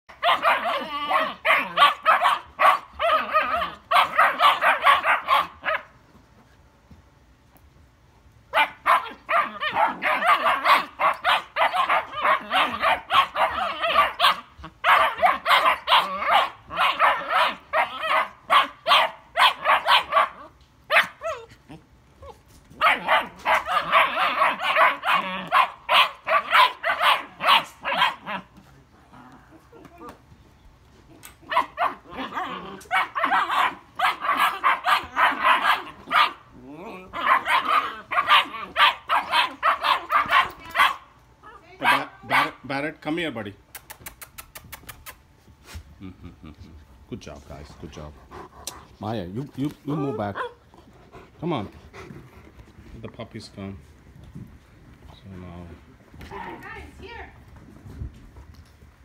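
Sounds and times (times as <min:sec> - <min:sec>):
puppies barking: 0:00.1 - 0:06.0, 0:08.5 - 0:21.5, 0:22.8 - 0:28.6, 0:31.2 - 0:41.2, 0:41.8 - 0:42.7, 0:49.9 - 0:50.6.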